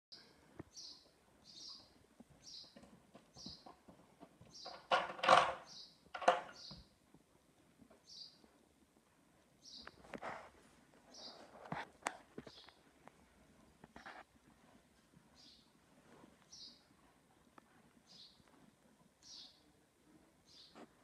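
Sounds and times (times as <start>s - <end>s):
small bird chirping: 0.7s - 3.8s, 5.6s - 6.9s, 8.0s - 8.4s, 9.6s - 10.0s, 11.1s - 11.5s, 12.4s - 12.8s, 15.4s - 15.7s, 16.5s - 16.9s, 18.1s - 18.4s, 19.2s - 19.7s, 20.5s - 20.8s.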